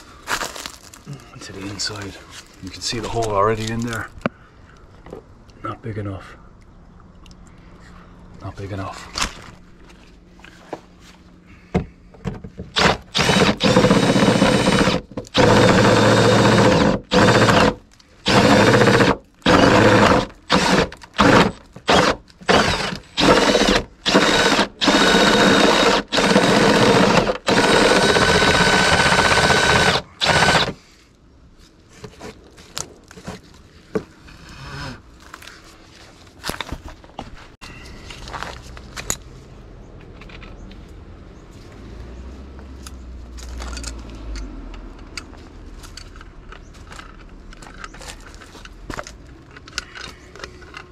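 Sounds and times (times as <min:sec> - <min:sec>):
cordless drill boring into wood: 0:12.7 - 0:30.8.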